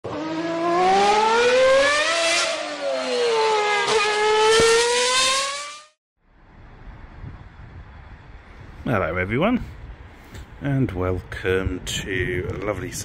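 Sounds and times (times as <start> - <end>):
car engine revving: 0.0 - 6.0.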